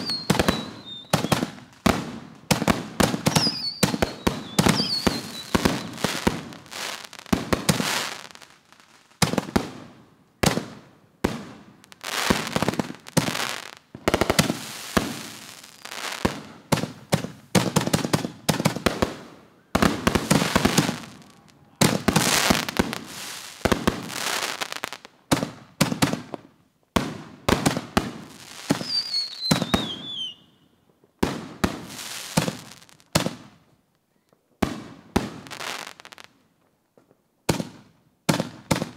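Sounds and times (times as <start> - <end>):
falling firework whistle: 0.0 - 1.6, 3.2 - 7.2, 28.5 - 30.8
fireworks bursting and crackling: 0.0 - 38.9.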